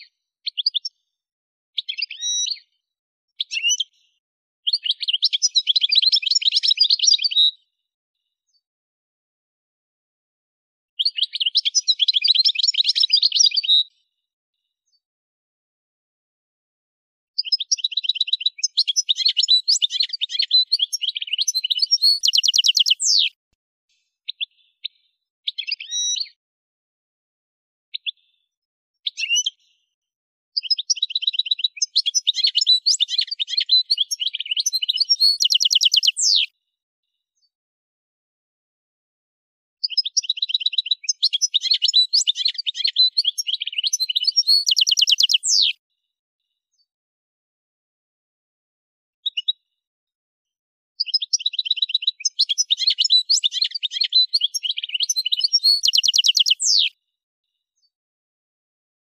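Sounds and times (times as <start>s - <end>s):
goldfinch twittering song: 17.4s - 23.3s, 30.8s - 36.5s, 40.2s - 45.8s, 51.1s - 56.9s.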